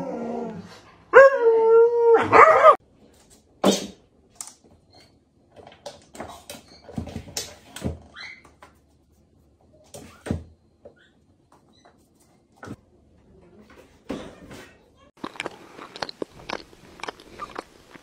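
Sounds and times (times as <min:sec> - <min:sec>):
husky howling: 0:00.0 - 0:02.8.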